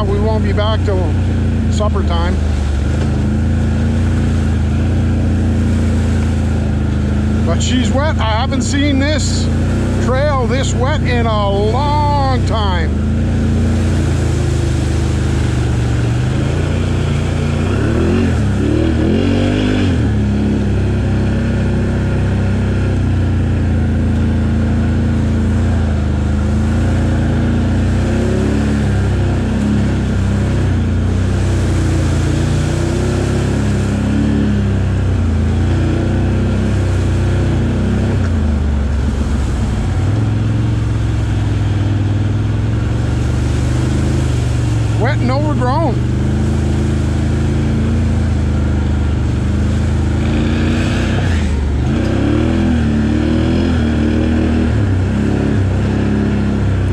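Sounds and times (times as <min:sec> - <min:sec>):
atv engine revving: 0:00.0 - 0:56.9.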